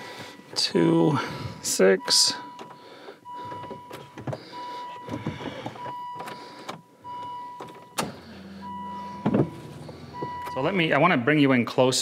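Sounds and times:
car warning chime beeping: 0.3s - 11.1s
low hum: 8.0s - 10.6s.

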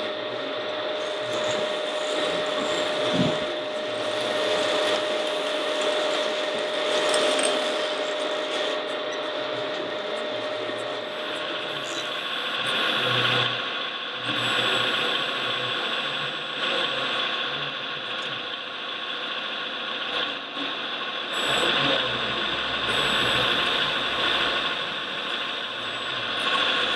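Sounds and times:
short low hums: 0.0s - 11.8s
electric motors and gearboxes grinding: 0.0s - 13.6s, 14.3s - 17.2s, 21.4s - 26.9s
thin high whine: 0.0s - 18.2s, 21.3s - 26.9s.

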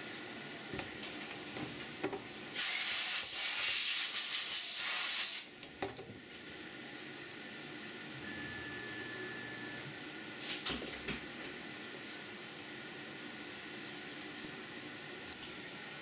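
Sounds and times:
coolant spray hissing: 2.6s - 5.5s.

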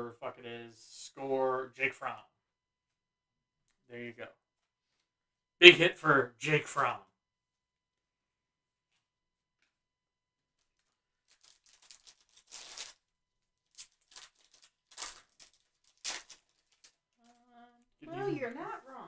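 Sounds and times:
foil wrapper tearing and crinkling: 10.7s - 17.4s.

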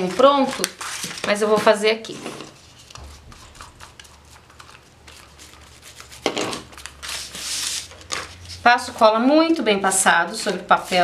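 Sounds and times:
paper rustling: 0.0s - 9.0s, 10.4s - 11.0s
hissing scrape of paper: 7.0s - 8.6s, 10.7s - 11.0s.

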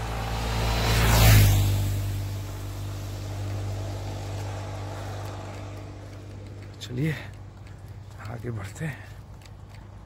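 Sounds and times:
road vehicle passing: 0.0s - 10.0s.

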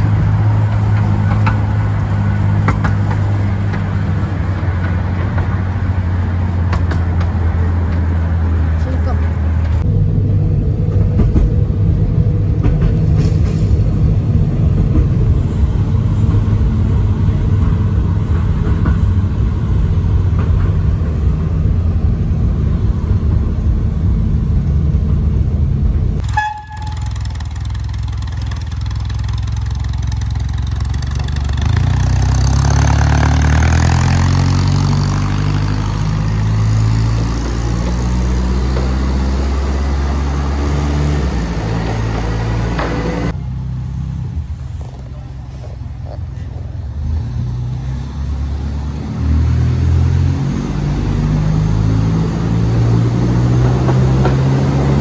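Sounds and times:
diesel locomotive engine: 0.0s - 55.0s
locomotive horn toot: 26.2s - 27.3s.

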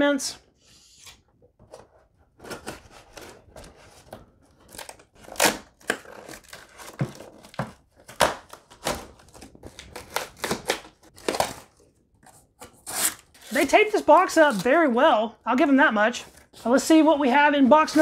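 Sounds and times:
blade ripping through cardboard box: 4.6s - 11.9s, 12.6s - 14.7s.

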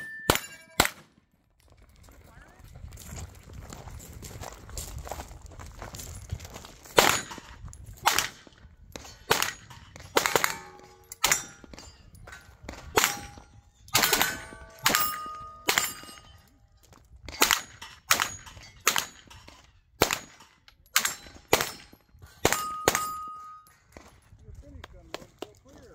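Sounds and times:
gunshots: 0.0s - 1.2s, 6.9s - 11.9s, 12.7s - 16.3s, 17.3s - 19.4s, 20.0s - 23.6s.

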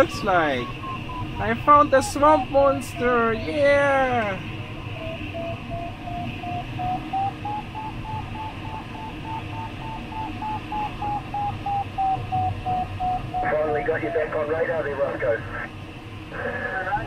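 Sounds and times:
variometer short beeps: 0.0s - 1.7s, 4.8s - 13.6s.

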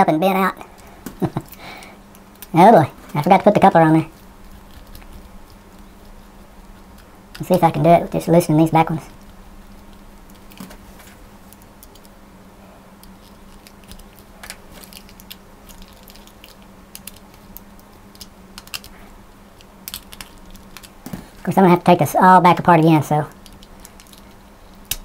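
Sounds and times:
plastic parts being handled: 13.0s - 19.0s, 23.3s - 25.0s.

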